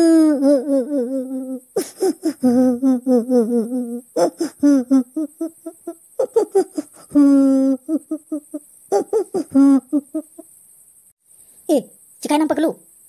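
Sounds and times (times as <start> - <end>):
girl sobbing and wailing: 0.0 - 10.4.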